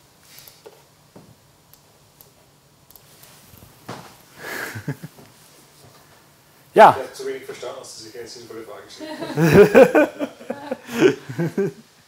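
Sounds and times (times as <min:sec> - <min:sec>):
person laughing: 0:04.4 - 0:05.2, 0:09.0 - 0:11.8.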